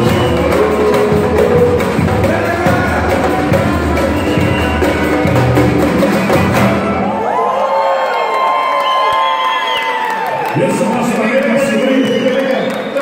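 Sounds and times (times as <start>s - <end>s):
samba band playing: 0.0s - 7.3s
drums: 0.0s - 7.4s
crowd cheering and shouting: 0.0s - 13.0s.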